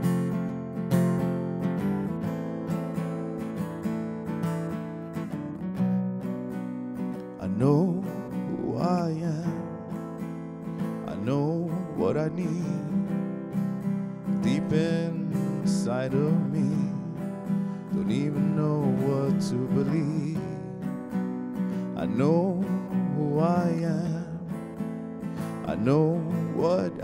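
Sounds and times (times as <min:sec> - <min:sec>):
acoustic guitar strumming: 0:00.0 - 0:27.0
person singing wordless phrases: 0:07.2 - 0:09.7, 0:11.0 - 0:13.1, 0:14.4 - 0:20.8, 0:21.8 - 0:24.5, 0:25.5 - 0:27.0.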